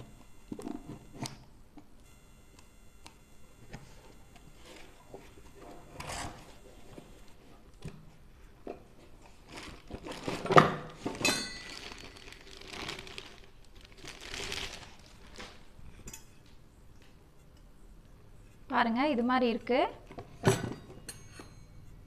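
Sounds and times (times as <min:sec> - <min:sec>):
plastic wrapping crinkling: 0:09.0 - 0:15.8
metallic clink: 0:21.0 - 0:21.8.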